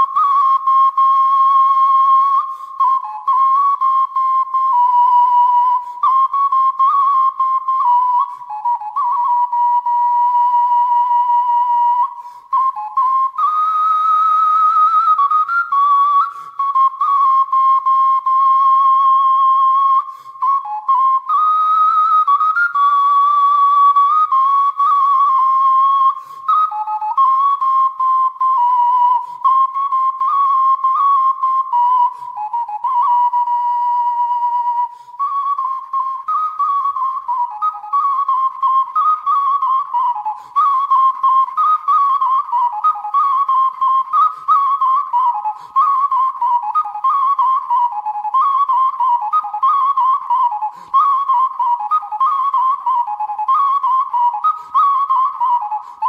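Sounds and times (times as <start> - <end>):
solo flute melody: 0.0 - 56.0.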